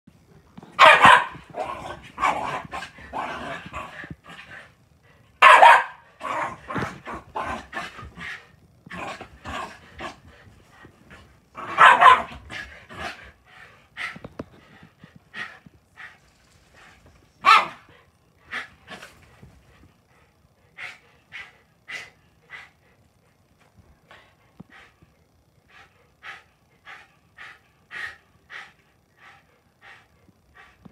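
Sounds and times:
loud dog barks: 0:00.8 - 0:01.4, 0:05.4 - 0:06.0, 0:11.7 - 0:12.3, 0:17.4 - 0:17.8.

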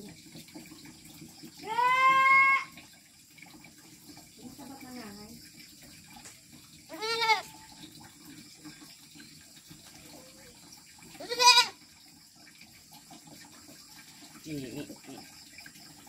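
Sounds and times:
goat kids bleating: 0:01.6 - 0:02.7, 0:06.9 - 0:07.6, 0:11.2 - 0:11.8.

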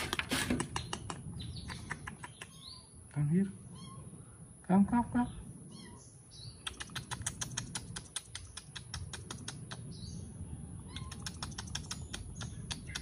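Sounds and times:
rapid sharp clicks: 0:06.7 - 0:09.9.

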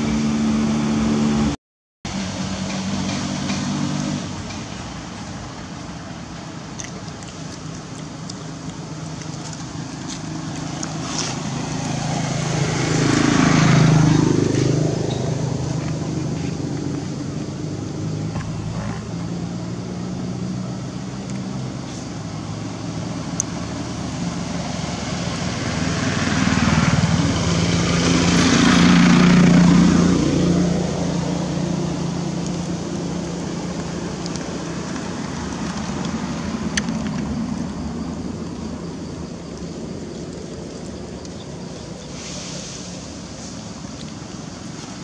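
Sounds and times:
engine hum: 0:00.0 - 0:45.0
vehicle passing: 0:07.3 - 0:45.0.

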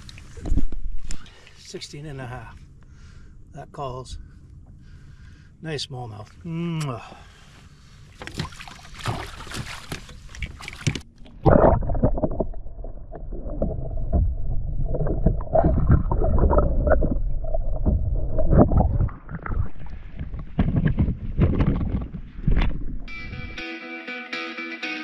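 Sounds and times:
muffled underwater sloshing: 0:07.1 - 0:23.1
water splashing: 0:08.1 - 0:23.1.

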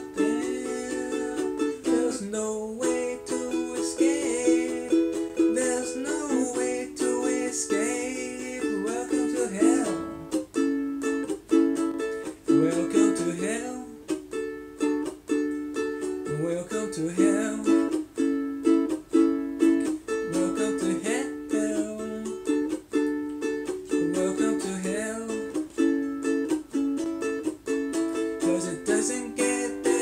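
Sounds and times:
man singing wordless lines: 0:00.0 - 0:10.4, 0:12.4 - 0:14.1, 0:16.2 - 0:18.0, 0:20.2 - 0:22.5, 0:23.9 - 0:25.6, 0:28.3 - 0:30.0
ukulele strumming chords: 0:00.0 - 0:30.0.

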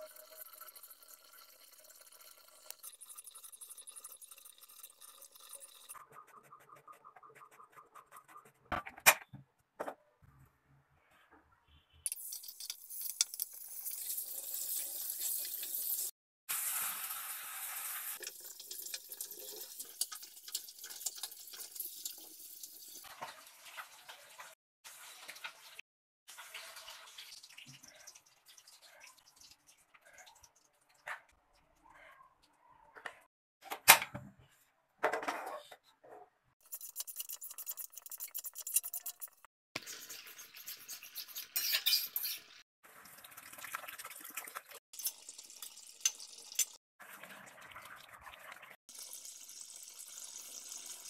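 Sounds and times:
fish frying in hot oil: 0:12.1 - 0:23.1, 0:42.4 - 0:47.6, 0:48.9 - 0:51.0.

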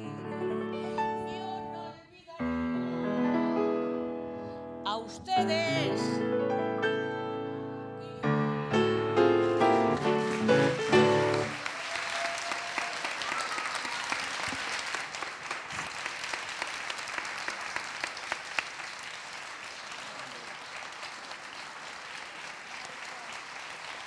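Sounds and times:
grand piano chords: 0:00.0 - 0:11.6
audience applauding: 0:08.9 - 0:24.0.

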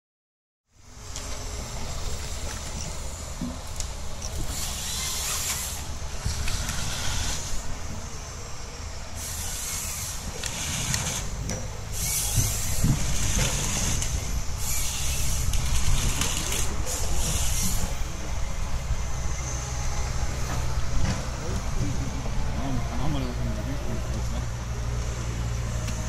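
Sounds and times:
diesel engine low rumble: 0:00.7 - 0:26.0
high hissing: 0:04.4 - 0:15.9.

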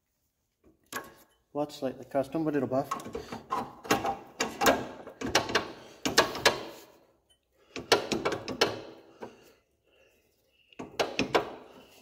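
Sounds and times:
metal clicks and clanks: 0:02.9 - 0:06.8, 0:07.7 - 0:09.3.

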